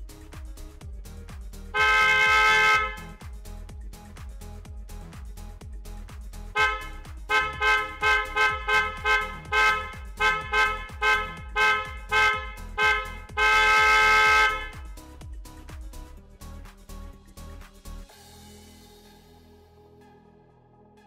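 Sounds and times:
shrill motorcycle horns honking: 0:01.8 - 0:03.2, 0:06.6 - 0:14.9.

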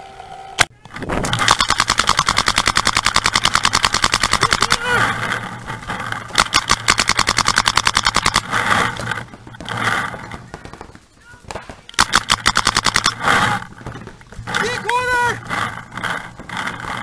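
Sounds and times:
paintball markers firing: 0:00.8 - 0:05.0, 0:06.3 - 0:13.9.

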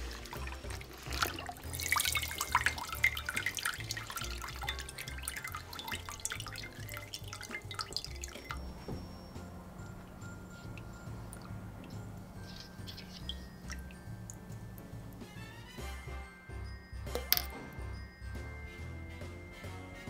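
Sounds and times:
water dripping and splashing: 0:00.0 - 0:09.1, 0:09.9 - 0:15.3.

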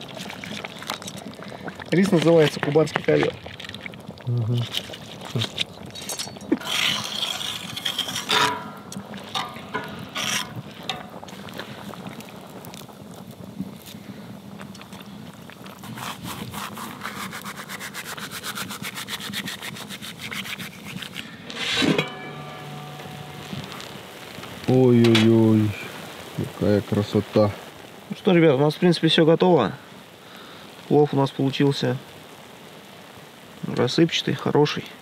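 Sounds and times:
utensil scraping in pot: 0:04.6 - 0:11.8, 0:15.6 - 0:25.4.

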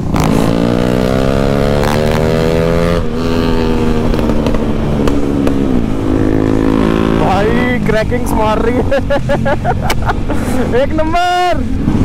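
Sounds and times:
motorcycle engine running: 0:00.0 - 0:10.8
exhaust pops and crackles: 0:04.0 - 0:05.9.

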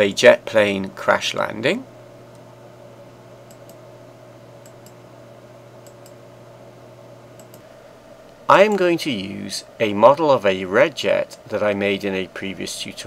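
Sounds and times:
low electrical hum and hiss: 0:00.0 - 0:13.0
computer mouse clicking: 0:03.5 - 0:03.8, 0:05.8 - 0:06.2, 0:07.4 - 0:07.7.

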